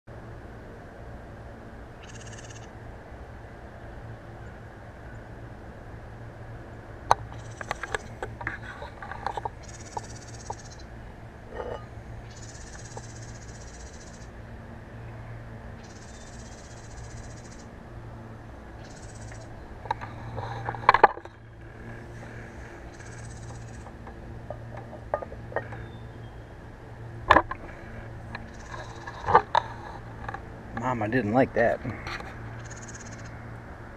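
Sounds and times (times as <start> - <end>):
ceramic lid clicks and scrapes: 11.5 - 11.9.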